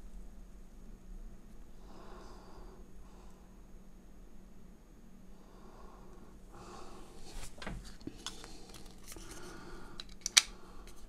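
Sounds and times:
earbud clicking into case: 10.0 - 11.0.

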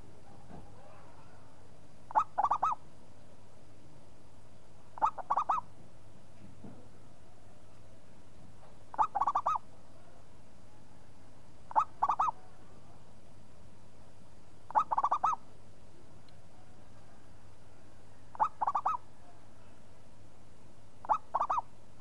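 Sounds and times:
dove cooing: 2.1 - 2.8, 5.0 - 5.7, 8.9 - 9.6, 11.7 - 12.4, 14.7 - 15.4, 18.3 - 19.0, 21.0 - 21.7.

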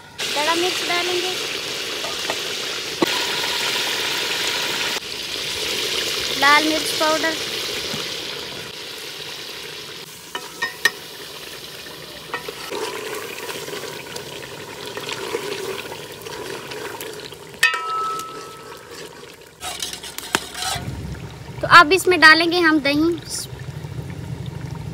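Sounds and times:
food sizzling in a pot: 0.0 - 21.0
ladle knocking on pot: 17.6 - 18.7
ringing metal clink: 17.6 - 18.8.

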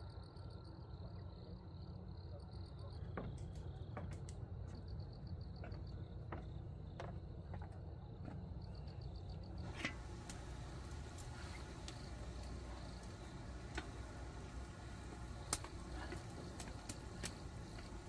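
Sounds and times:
insect chirping: 0.0 - 18.0
low steady hum: 4.4 - 18.0.

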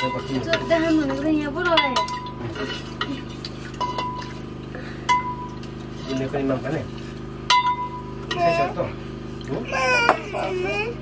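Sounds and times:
metal spoon scraping a wok: 0.0 - 4.1.

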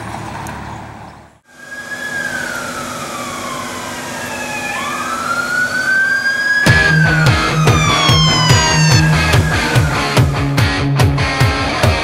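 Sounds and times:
police siren wailing: 1.4 - 11.0.

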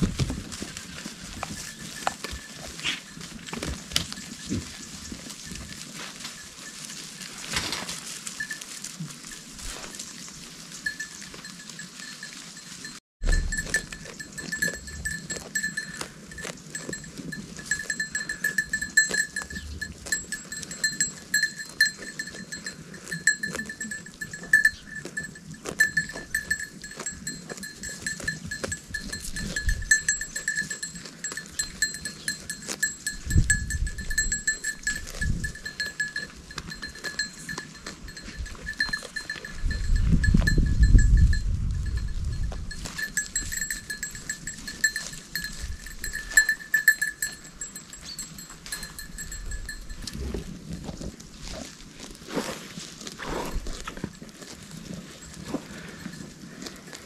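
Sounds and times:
goats tearing and chewing grass: 0.0 - 57.0
small bell jingling: 10.8 - 50.3.

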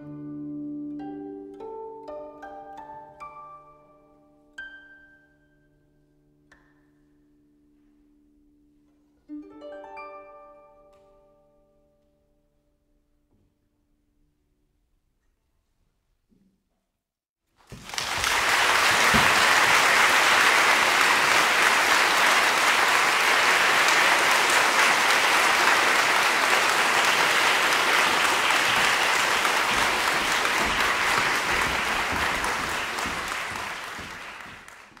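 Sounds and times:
audience applauding: 17.6 - 35.0.

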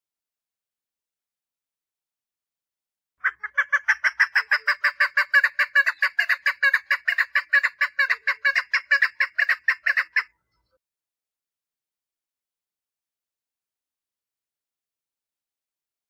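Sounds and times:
partridge calling rapid notes: 3.2 - 10.3.

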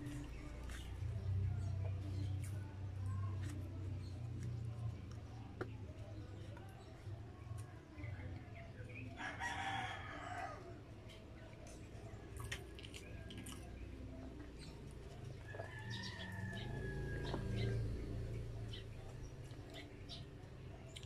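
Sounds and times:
rooster crowing: 9.2 - 10.6, 15.5 - 17.8.

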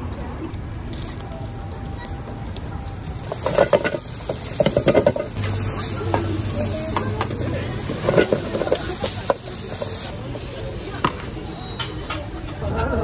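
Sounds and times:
steady cooking hiss: 0.5 - 12.6
utensils clinking and knocking: 3.2 - 5.5, 6.9 - 12.6.

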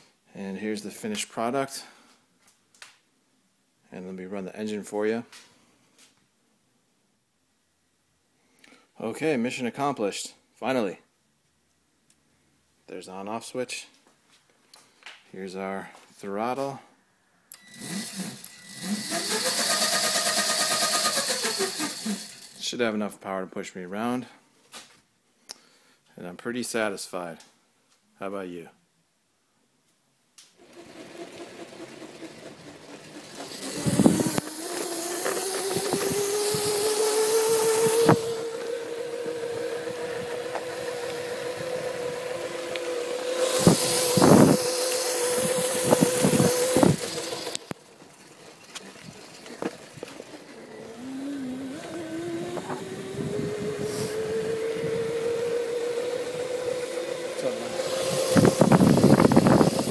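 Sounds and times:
electric motor whine: 17.6 - 22.6, 30.6 - 47.8, 48.6 - 59.9
wind on microphone: 33.7 - 34.5, 35.6 - 38.5, 43.4 - 47.2, 52.0 - 56.6, 57.8 - 59.9.

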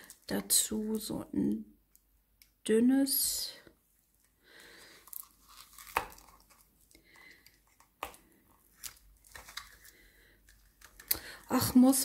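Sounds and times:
plastic packaging being cut and torn: 5.0 - 11.2.

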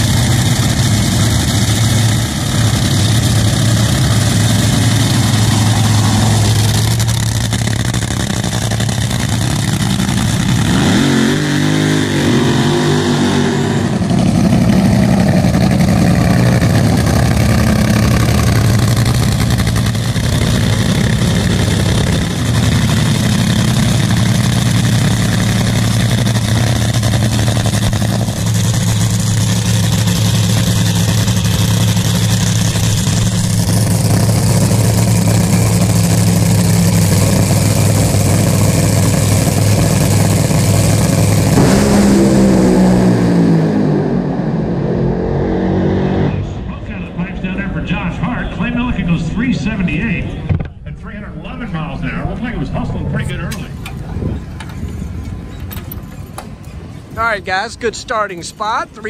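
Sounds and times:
dragster engine idling: 0.0 - 10.7, 14.0 - 43.1.

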